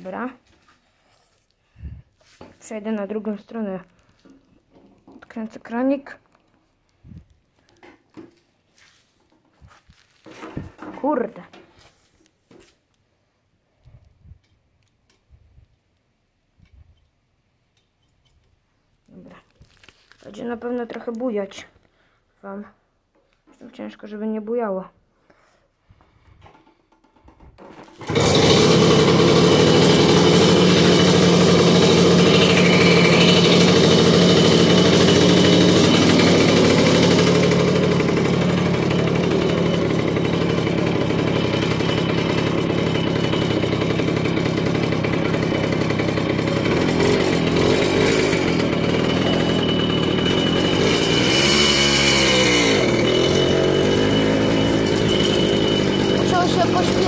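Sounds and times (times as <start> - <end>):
two-stroke moped engine: 26.6 - 57.0.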